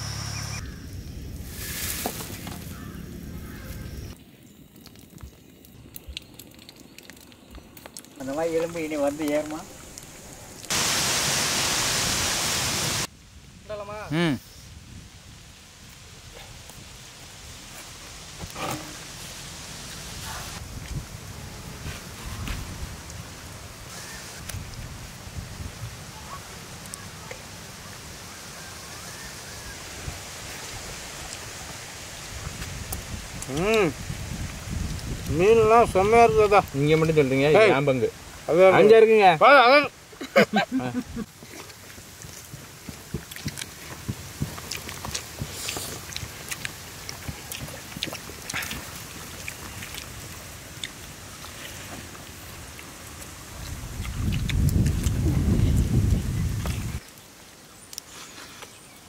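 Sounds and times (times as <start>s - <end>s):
faint bird calls: 0.0s - 1.0s, 2.6s - 4.2s
steady low hiss: 0.0s - 59.0s
wind on microphone: 20.2s - 26.4s, 29.6s - 36.8s, 53.5s - 57.0s
fingers scooping rice on a leaf: 41.5s - 47.9s.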